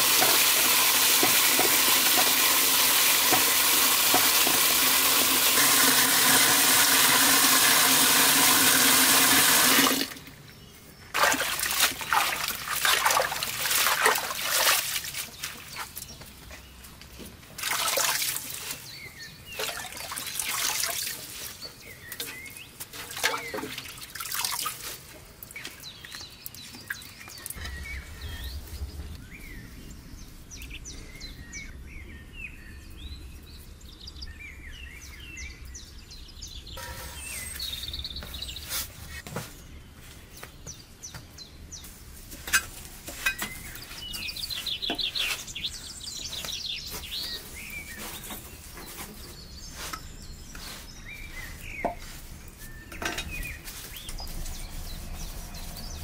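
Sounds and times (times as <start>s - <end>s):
water splashing and pouring: 0.0s - 10.2s, 11.1s - 15.9s, 17.5s - 18.8s, 19.5s - 21.7s, 23.0s - 25.2s
birds chirping: 25.4s - 56.0s.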